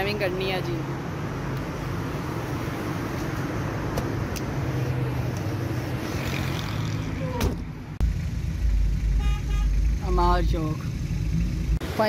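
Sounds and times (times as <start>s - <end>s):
car door shutting: 7.3s - 7.7s
car engine idling: 8.0s - 11.8s.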